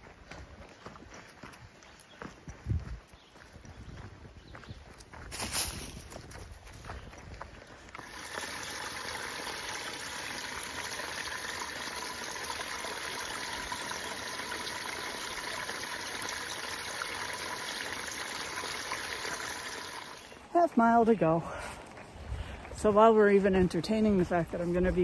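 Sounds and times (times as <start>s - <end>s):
water trickling and splashing: 7.9s - 20.8s.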